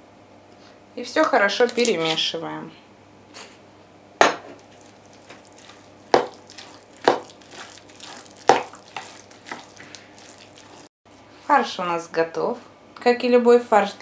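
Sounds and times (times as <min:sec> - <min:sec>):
spoon stirring minced meat: 0:04.6 - 0:10.9.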